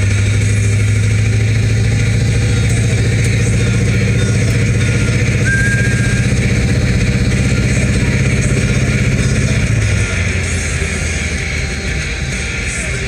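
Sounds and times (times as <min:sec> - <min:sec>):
car engine driving: 0:00.0 - 0:13.0.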